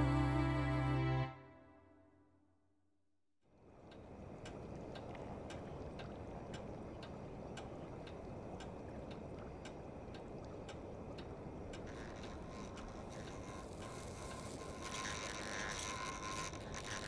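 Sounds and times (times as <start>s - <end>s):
low steady rumble: 0.0s - 1.3s
pendulum clock ticking: 3.8s - 17.0s.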